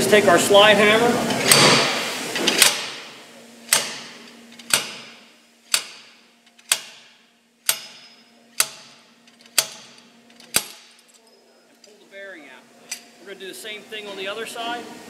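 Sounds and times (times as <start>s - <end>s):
slide hammer metallic clanks: 7.7s - 11.0s.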